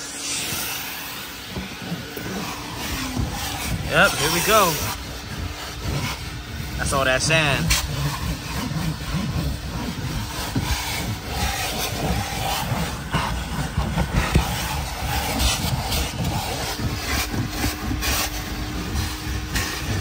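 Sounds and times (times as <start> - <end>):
steady low rumble: 0.0 - 12.4
sand scraping and brushing: 0.0 - 20.0.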